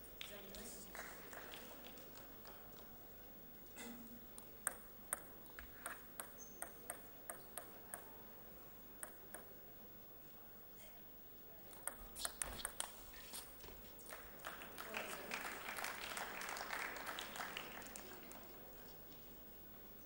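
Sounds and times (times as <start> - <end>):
table tennis ball ticking: 4.6 - 8.2, 9.0 - 9.5.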